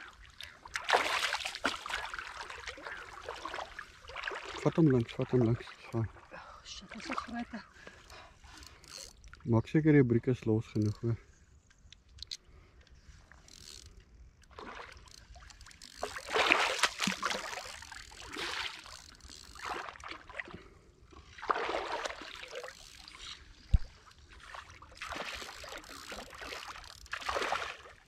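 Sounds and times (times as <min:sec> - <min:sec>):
fish splashing in water: 0:00.2 - 0:04.7, 0:14.5 - 0:20.5, 0:21.4 - 0:28.0.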